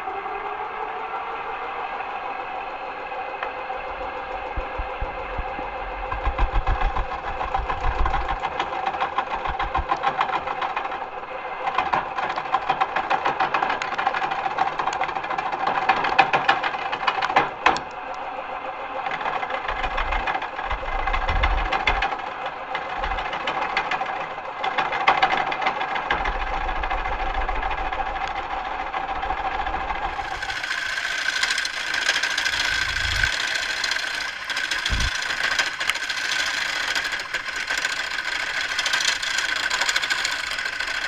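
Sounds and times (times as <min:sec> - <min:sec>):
wood lathe motor whine: 0:00.0 - 0:41.0
turning tool scraping wood: 0:29.9 - 0:41.0.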